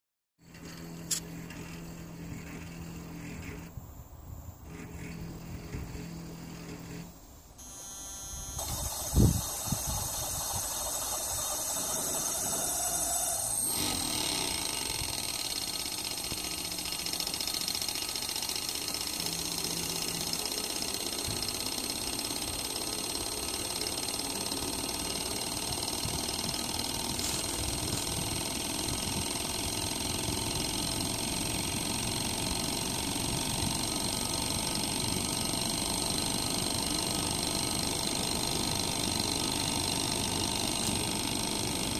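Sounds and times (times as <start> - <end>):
high steady whine: 0.4 - 3.8, 4.6 - 22.9, 23.5 - 41.9
compressor rattling: 8.6 - 41.9.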